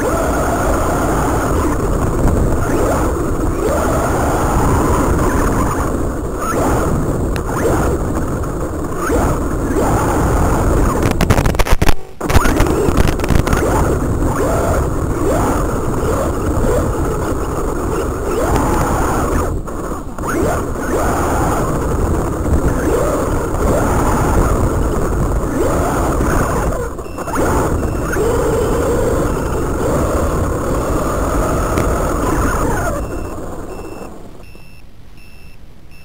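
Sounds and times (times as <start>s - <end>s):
rc car motor whining: 20.2s - 34.0s.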